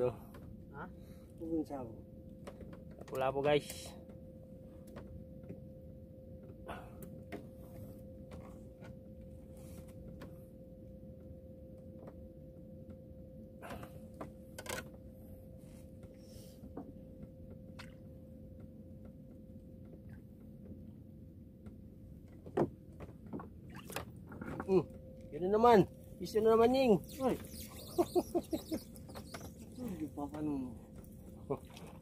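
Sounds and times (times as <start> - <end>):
faint constant tone: 0.0 - 32.0
low hum: 3.9 - 32.0
clicks of handling fishing tackle: 14.6 - 15.0.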